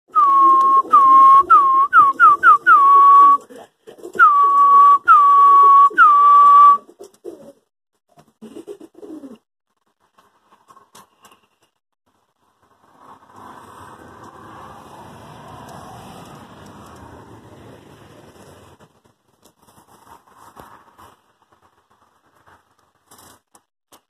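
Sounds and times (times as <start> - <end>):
high sliding whistling tones: 0.1 - 3.4, 4.2 - 6.8
pigeon cooing: 0.2 - 7.6, 8.4 - 9.4.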